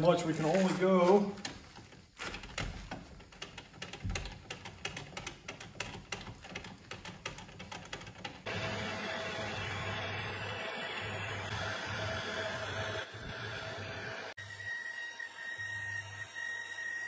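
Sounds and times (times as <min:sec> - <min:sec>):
lathe handwheel clicking: 0:01.3 - 0:08.5
lathe running with steady hum: 0:08.5 - 0:17.0.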